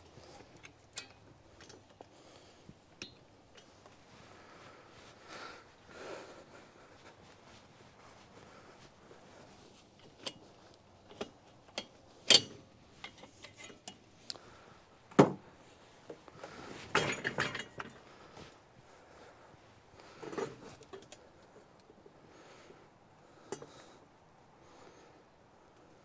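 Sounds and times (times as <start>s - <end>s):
metal parts clanking and rattling: 16.9s - 18.0s.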